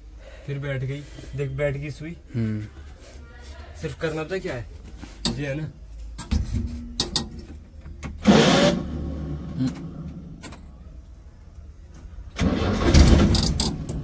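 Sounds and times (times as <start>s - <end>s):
van engine cranking: 6.4s - 10.7s, 12.2s - 14.0s.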